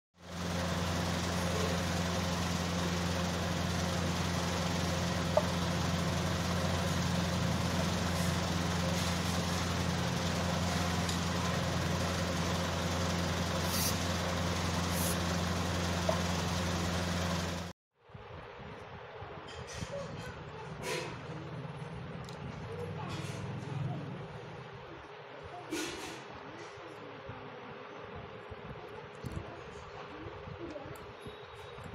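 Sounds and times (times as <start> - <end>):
low machine hum: 0.2 - 20.6.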